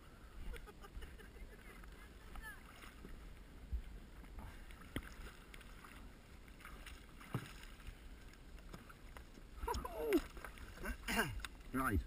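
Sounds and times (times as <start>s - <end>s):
water lapping: 0.0s - 12.0s
small water plops: 4.5s - 11.6s.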